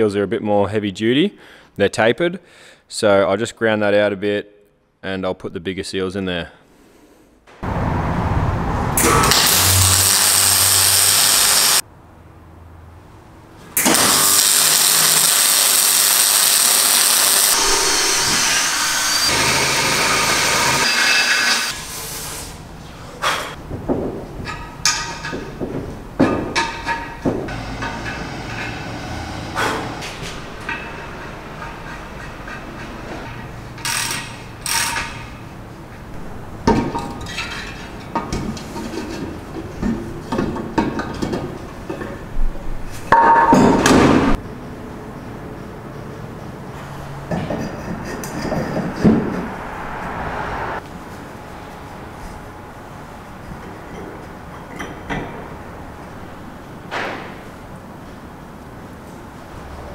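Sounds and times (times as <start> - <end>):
arc welding hiss: 9.2 - 11.8, 13.8 - 17.7.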